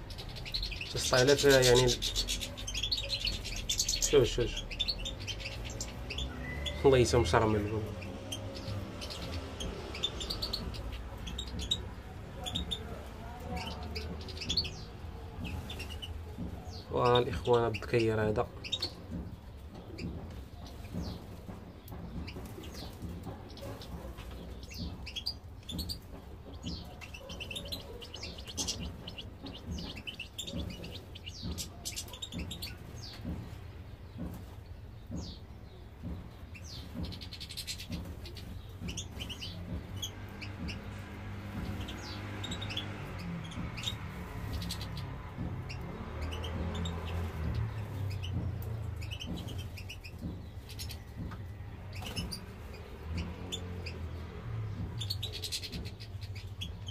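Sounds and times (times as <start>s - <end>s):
finches chirping: 0.0s - 56.9s.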